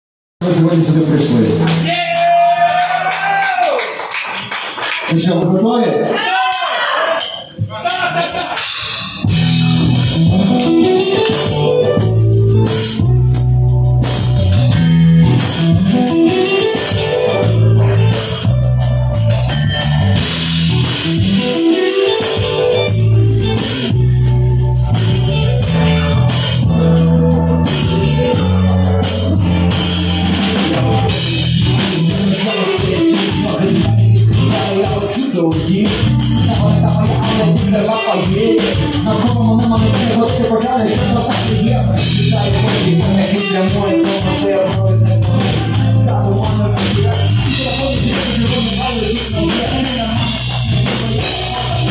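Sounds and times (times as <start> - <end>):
bass guitar: 0.4 - 3.8, 7.3 - 51.9
drum kit: 0.4 - 5.1, 6.2 - 51.9
electric guitar: 8.2 - 51.9.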